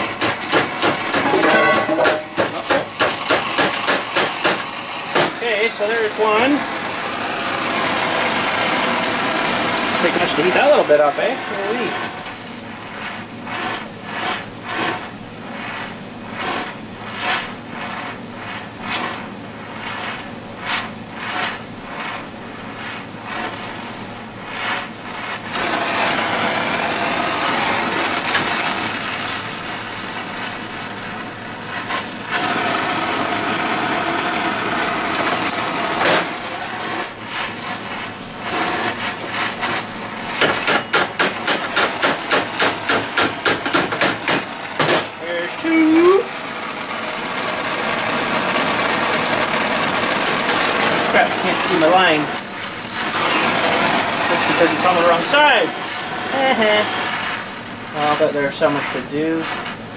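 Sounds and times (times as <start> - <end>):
hammer striking hot steel: 0.0 - 6.5, 9.1 - 28.9, 31.8 - 46.3, 48.7 - 52.0
torch flame hissing: 0.0 - 59.9.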